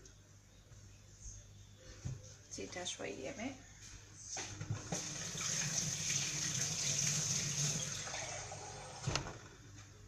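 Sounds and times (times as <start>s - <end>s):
water pouring: 4.9s - 9.0s.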